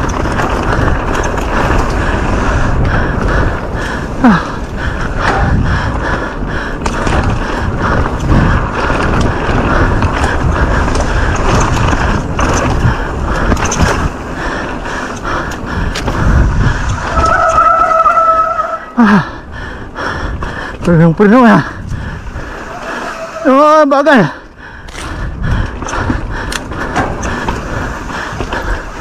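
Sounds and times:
bike rattling over rough ground: 0.0s - 29.0s
steady high squeal: 17.0s - 19.0s.

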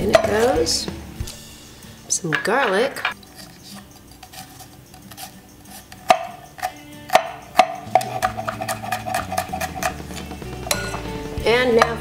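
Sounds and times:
knife chopping on wooden board: 6.0s - 6.4s.

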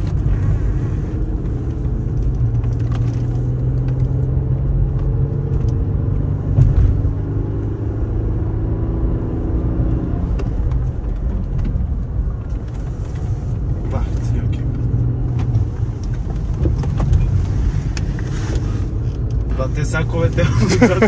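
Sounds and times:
car engine inside cabin: 0.0s - 21.0s
tyre and road rumble: 0.0s - 21.0s
car hitting a bump: 6.5s - 7.4s.

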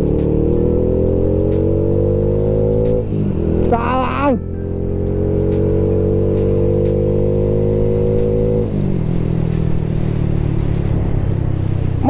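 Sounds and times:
motorcycle engine running hard: 0.0s - 12.0s.

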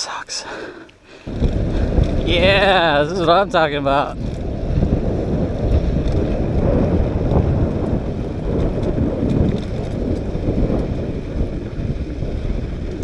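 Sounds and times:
bike clicks and rattles: 1.2s - 13.0s
wind buffeting microphone: 1.2s - 13.0s.

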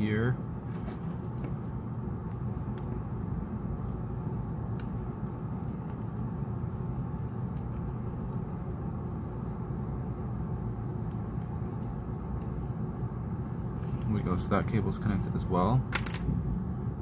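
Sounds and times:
low background rumble: 0.0s - 17.0s.

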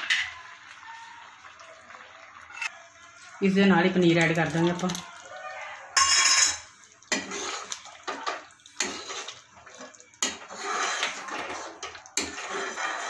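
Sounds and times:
gravy sloshing: 6.8s - 13.0s.

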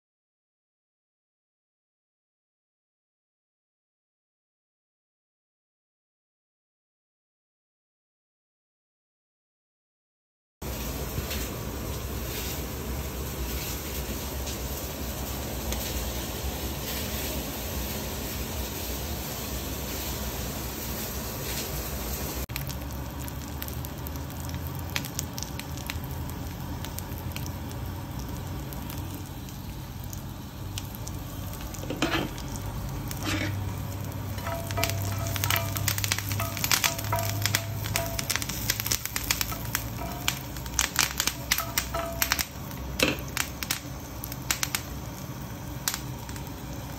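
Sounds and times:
garlic sizzling in hot oil: 10.6s - 46.9s
utensil scraping a pan: 31.7s - 42.4s.

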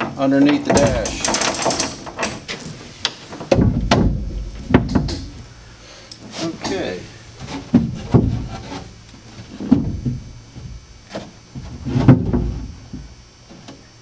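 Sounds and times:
dull hollow knocks and thumps: 3.1s - 5.5s, 7.4s - 13.8s.

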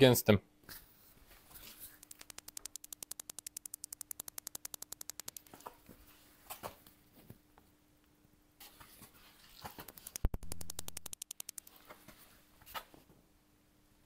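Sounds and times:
parking sensor clicking rapidly: 2.0s - 5.6s, 9.8s - 11.7s.

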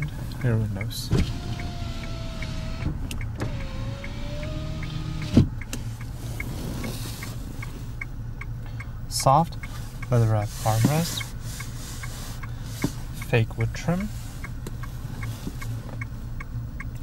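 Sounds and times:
power window motor whining: 1.1s - 7.8s.

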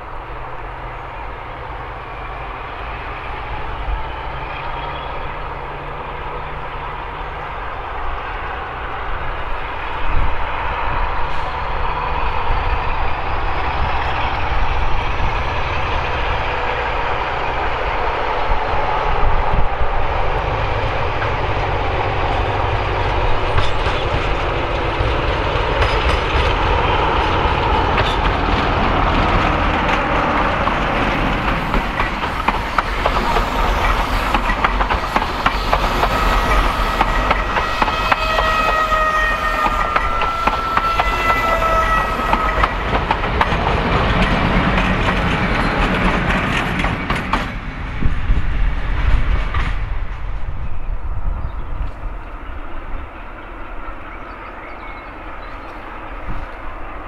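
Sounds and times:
diesel locomotive engine droning: 0.0s - 57.0s.

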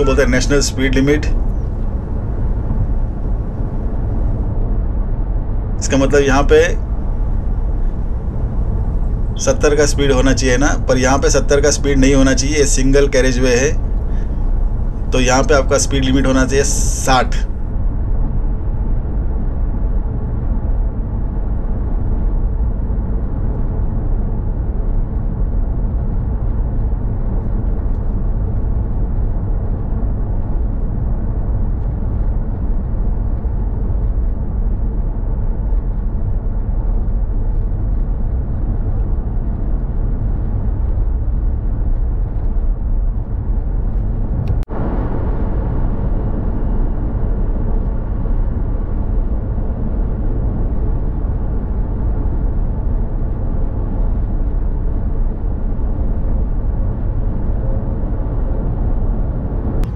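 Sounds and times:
car road and engine noise: 35.6s - 59.9s.

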